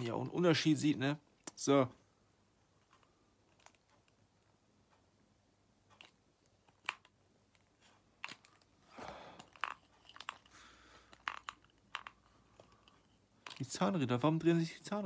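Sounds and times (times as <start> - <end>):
plastic clicks: 5.9 - 8.7, 9.4 - 13.8.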